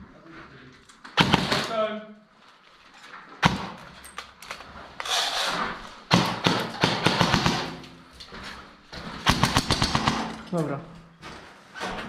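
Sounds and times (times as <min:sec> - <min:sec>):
airsoft gunfire: 0:01.2 - 0:01.8, 0:06.1 - 0:07.8, 0:09.2 - 0:10.4.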